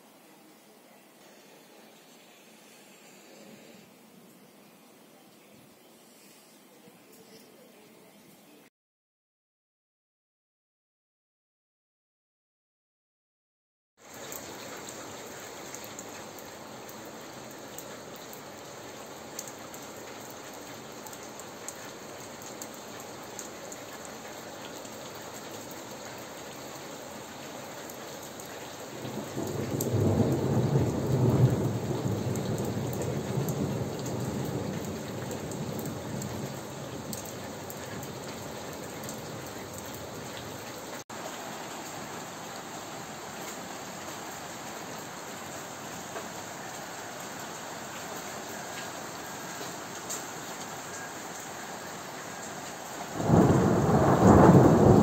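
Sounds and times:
rain hissing: 0:00.0 - 0:04.8, 0:14.0 - 0:55.0
raindrops ticking: 0:14.0 - 0:41.0, 0:52.6 - 0:55.0
deep thunder rumble: 0:29.0 - 0:37.7, 0:53.1 - 0:55.0.

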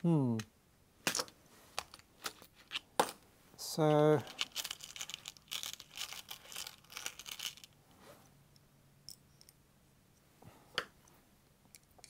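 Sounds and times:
metal screws rattling in plastic box: 0:04.3 - 0:07.8.

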